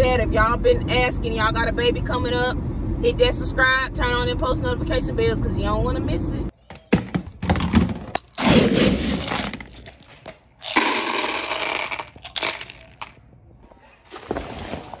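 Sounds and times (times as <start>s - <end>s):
kibble rattling into plastic bowl: 6.9s - 13.2s
cup scooping dry kibble: 8.2s - 13.1s.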